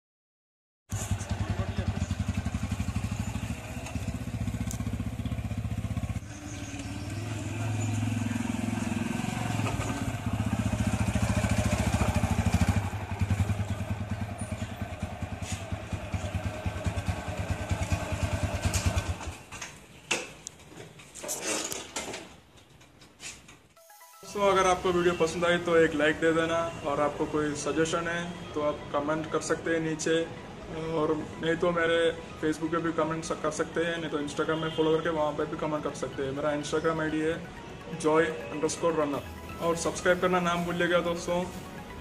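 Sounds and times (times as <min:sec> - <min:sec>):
motorcycle engine running: 0:00.9 - 0:19.4.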